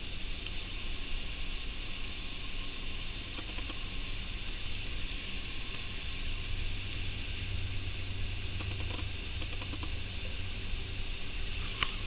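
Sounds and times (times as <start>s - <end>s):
even hiss: 0.0s - 12.0s
low hum: 0.0s - 12.0s
faint ticks: 3.3s - 3.8s, 8.6s - 10.0s.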